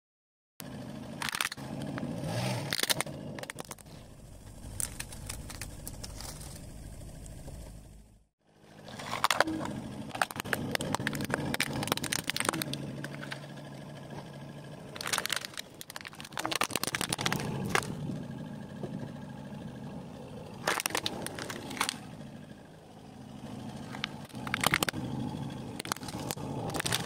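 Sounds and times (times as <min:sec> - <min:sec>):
car engine running low: 0:00.6 - 0:27.0
plastic toys cracking under car tyre: 0:01.2 - 0:06.6, 0:08.8 - 0:13.6, 0:14.8 - 0:18.2, 0:20.6 - 0:22.2, 0:23.8 - 0:27.0.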